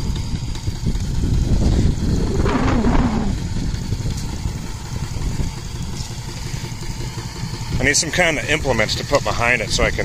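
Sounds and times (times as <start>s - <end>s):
loud rushing noise: 1.9s - 3.8s.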